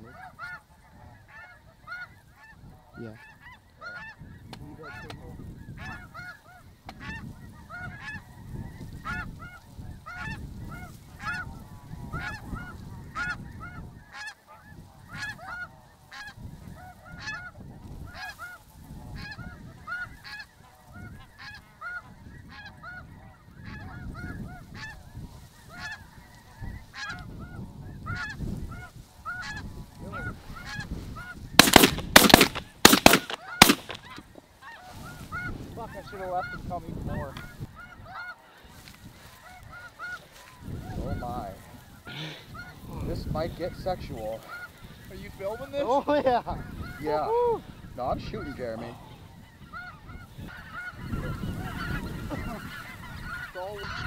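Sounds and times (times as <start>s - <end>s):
geese honking: 0.0s - 54.0s
wind on microphone: 0.0s - 54.0s
loud bangs: 31.6s - 34.2s.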